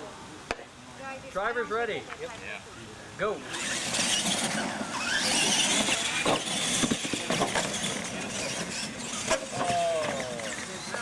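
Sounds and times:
toy truck motors whining: 0:03.4 - 0:11.0
tyres rushing on loose ground: 0:03.6 - 0:11.0.

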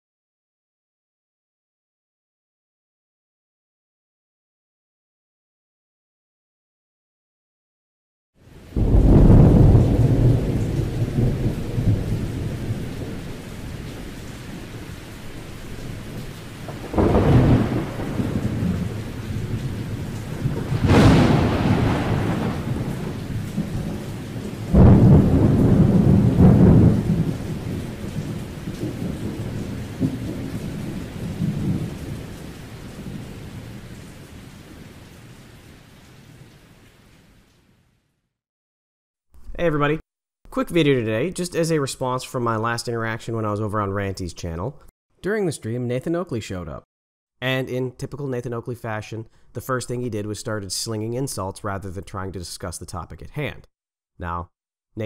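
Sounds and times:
steady rain: 0:08.4 - 0:38.2
thunder crack: 0:08.7 - 0:14.7, 0:16.0 - 0:33.8
thunder rolling: 0:08.7 - 0:34.0.

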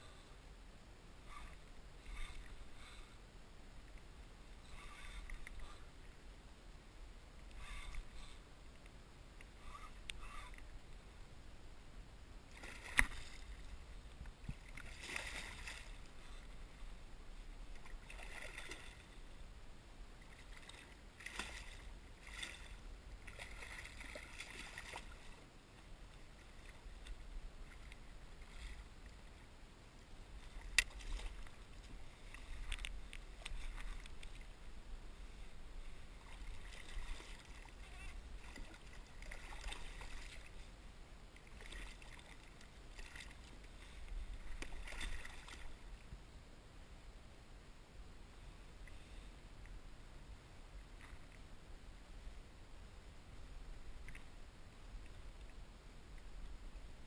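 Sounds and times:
water lapping at hull: 0:01.2 - 0:03.2, 0:03.8 - 0:06.3, 0:07.4 - 0:08.6, 0:09.4 - 0:11.2, 0:12.4 - 0:19.4, 0:20.0 - 0:29.6, 0:30.2 - 0:46.1.

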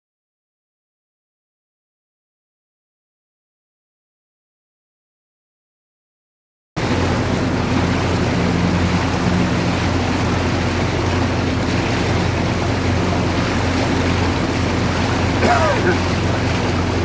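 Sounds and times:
boat engine running: 0:06.8 - 0:17.0
water rushing: 0:06.8 - 0:17.0
wind: 0:06.8 - 0:17.0.

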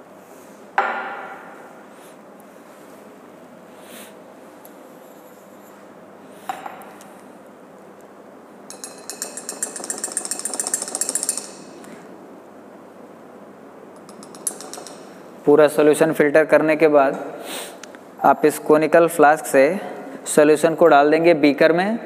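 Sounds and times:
glassware clinking: 0:08.7 - 0:12.0, 0:14.0 - 0:15.2.

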